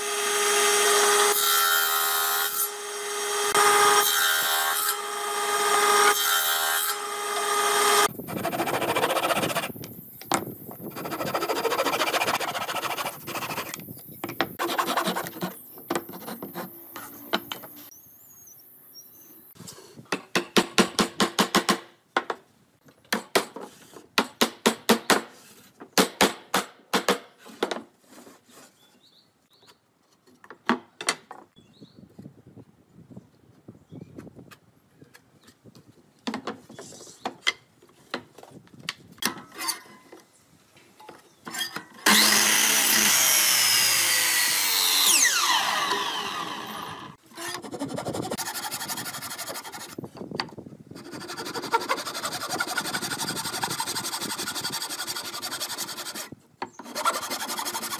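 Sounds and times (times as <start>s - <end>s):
table saw cutting wood: 0.0s - 9.7s, 11.0s - 13.7s, 14.6s - 15.6s, 41.6s - 50.0s, 51.0s - 57.9s
scraping and rubbing on wood: 8.3s - 9.7s, 10.9s - 17.7s.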